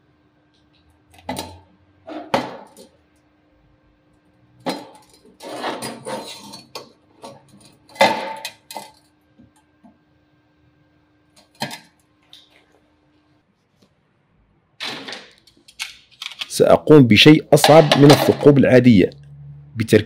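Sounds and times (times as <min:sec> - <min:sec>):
faint steady hum: 0:00.0 - 0:20.0
metal scraping and rattling: 0:04.7 - 0:09.0.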